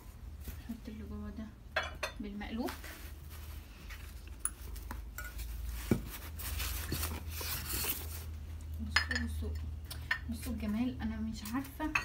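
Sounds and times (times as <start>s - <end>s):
cloth rustling: 2.6s - 8.4s.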